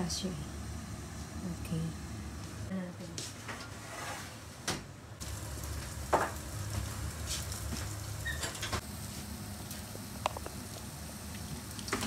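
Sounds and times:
fish sizzling: 0:05.2 - 0:12.0.

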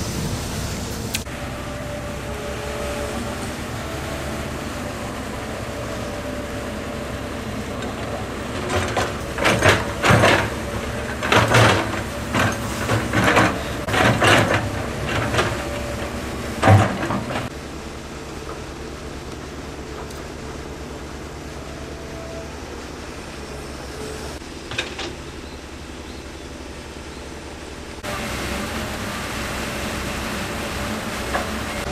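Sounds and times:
excavator diesel engine running: 0:00.0 - 0:31.9.

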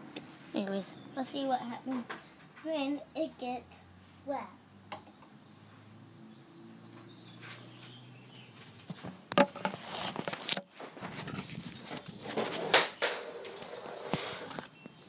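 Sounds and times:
camera handling knocks and rustling: 0:08.9 - 0:13.1.

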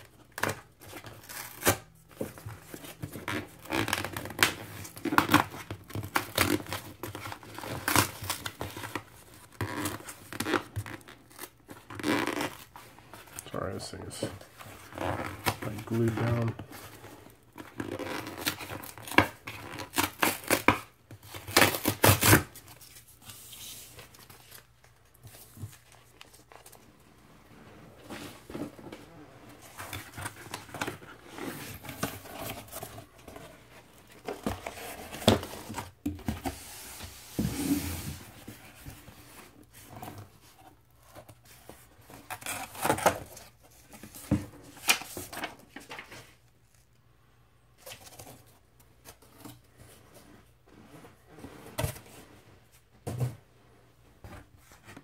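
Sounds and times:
cardboard box ripped open: 0:18.2 - 0:22.6
cardboard flaps rustling and scraping: 0:21.7 - 0:46.4.

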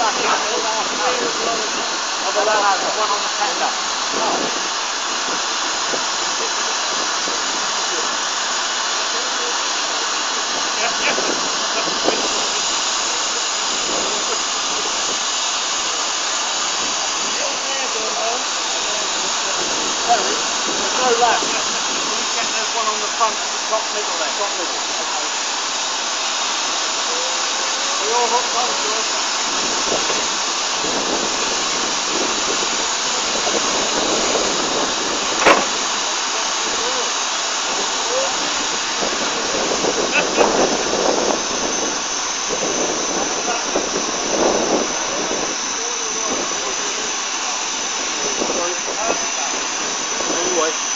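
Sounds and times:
steam hissing from locomotive: 0:00.0 - 0:50.9
sharp metal clank: 0:35.4 - 0:35.8.

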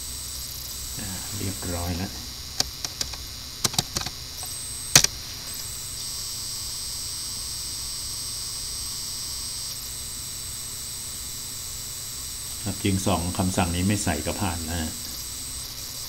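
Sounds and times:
steady hiss: 0:00.0 - 0:16.0
keyboard key clicks: 0:02.6 - 0:04.1.

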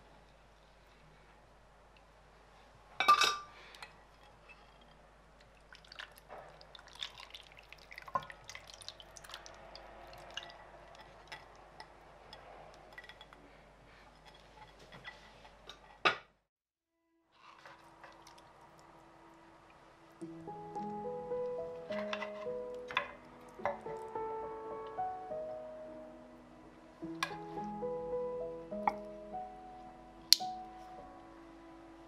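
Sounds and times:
clink against a dish: 0:03.0 - 0:03.5
faint liquid sounds: 0:03.8 - 0:14.7, 0:17.3 - 0:20.4.

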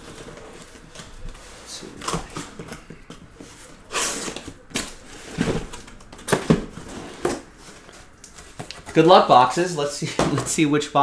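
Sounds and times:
cardboard boxes scraping and knocking: 0:00.0 - 0:09.3.

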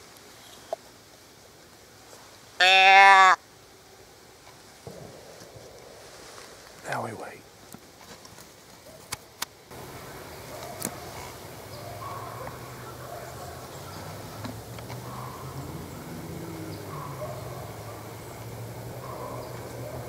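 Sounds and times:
bird calling: 0:02.6 - 0:03.4, 0:09.7 - 0:20.0.

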